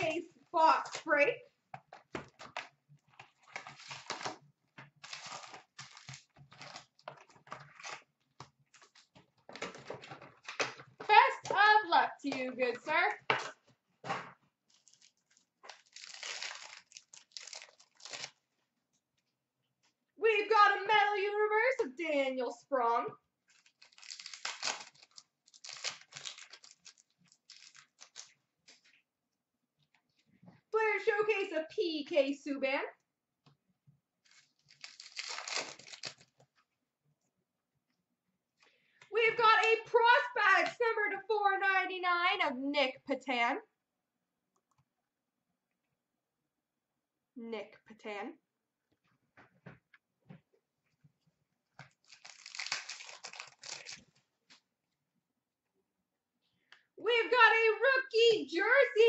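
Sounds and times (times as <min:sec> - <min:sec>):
card pack wrappers crinkling: 0:03.2 - 0:08.1, 0:14.7 - 0:18.4, 0:23.5 - 0:28.8, 0:34.2 - 0:36.4, 0:51.8 - 0:54.2.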